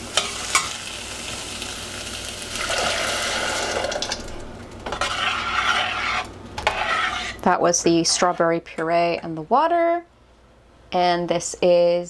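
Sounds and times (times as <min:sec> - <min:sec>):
vegetables sizzling in a saucepan: 0:00.0 - 0:07.4
spoon stirring: 0:04.8 - 0:08.4.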